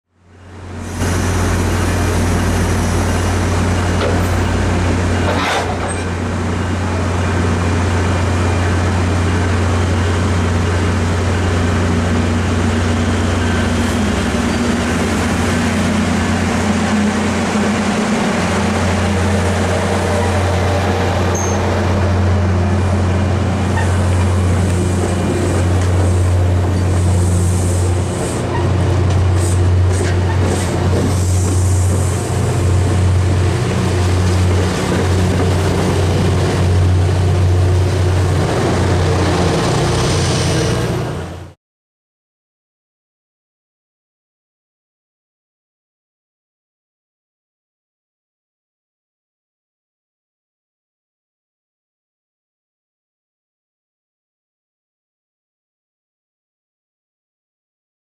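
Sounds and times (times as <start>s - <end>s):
train wheels rumbling on rails: 0.4s - 41.6s.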